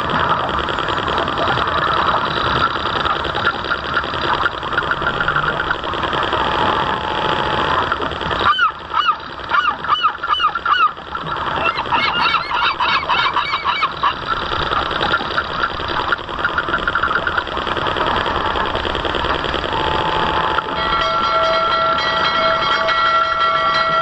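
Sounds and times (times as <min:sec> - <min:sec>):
model boat motor droning: 0:00.0 - 0:24.0
geese honking: 0:08.4 - 0:14.3.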